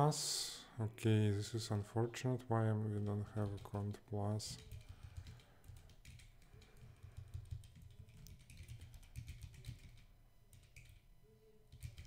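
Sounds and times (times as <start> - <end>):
faint keyboard typing: 2.8 - 12.0.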